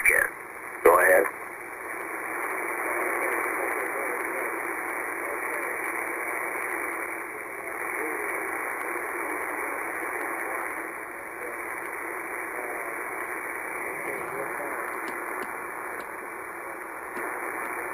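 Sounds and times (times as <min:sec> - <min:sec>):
weak voice over radio: 0:00.0 - 0:01.4, 0:02.6 - 0:17.9
radio static rush: 0:00.0 - 0:17.9.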